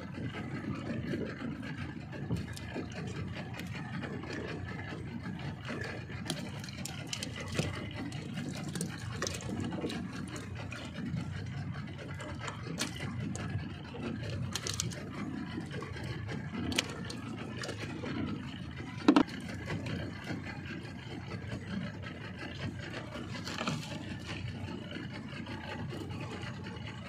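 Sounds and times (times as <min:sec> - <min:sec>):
outboard motor running: 0:00.0 - 0:27.0
fishing tackle clicks and rattles: 0:05.9 - 0:10.0, 0:14.2 - 0:15.1.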